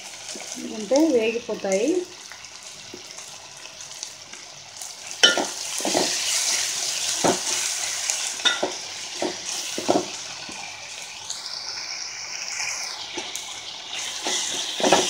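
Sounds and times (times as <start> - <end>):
vegetables sizzling in oil: 0.0 - 15.0
spoon knocking and scraping pot: 5.2 - 6.2, 8.4 - 10.1, 14.2 - 15.0.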